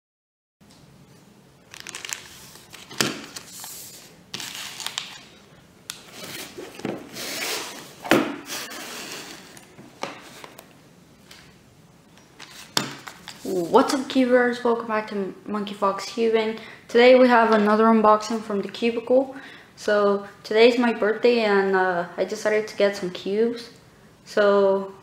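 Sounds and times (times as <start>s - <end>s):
plastic packaging crinkling: 1.7s - 8.0s.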